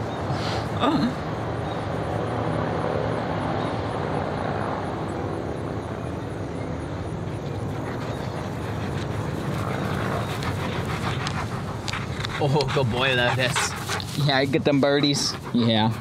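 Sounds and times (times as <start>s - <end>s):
engine drone: 0.0s - 14.2s.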